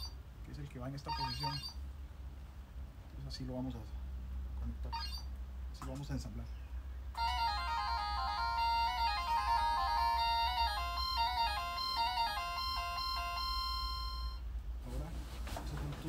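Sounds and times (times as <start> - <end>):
steady low hum: 0.0 - 16.0
electronic beeping melody: 7.2 - 14.4.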